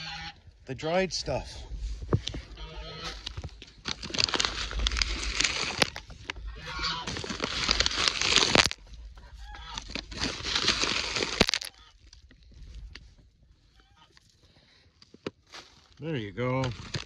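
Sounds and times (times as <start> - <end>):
chickens clucking: 2.4 - 3.3, 6.4 - 7.2, 9.0 - 9.9.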